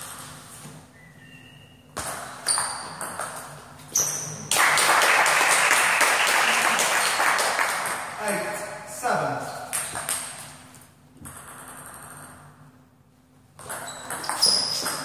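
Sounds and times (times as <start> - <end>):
table tennis ball pinging: 2.0 - 4.2, 11.2 - 12.4, 13.6 - 15.0
loud clapping: 4.5 - 8.2.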